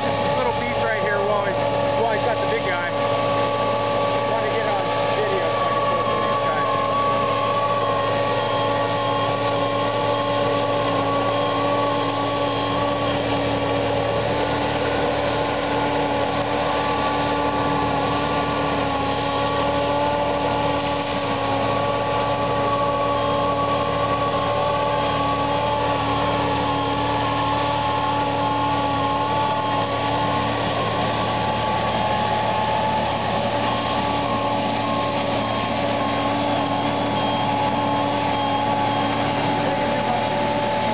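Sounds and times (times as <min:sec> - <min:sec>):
mulcher engine drone: 0:00.0 - 0:40.9.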